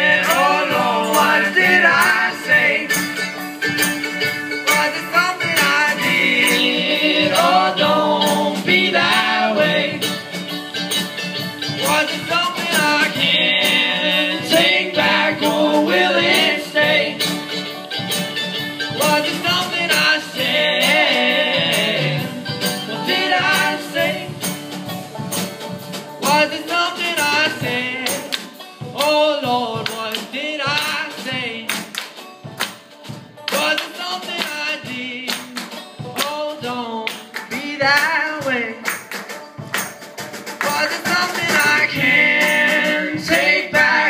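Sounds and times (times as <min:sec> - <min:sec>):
acoustic guitar: 0:00.0 - 0:44.0
banjo: 0:00.0 - 0:44.0
drum kit: 0:00.0 - 0:44.0
person singing: 0:04.6 - 0:10.2, 0:19.0 - 0:24.4, 0:40.6 - 0:44.0.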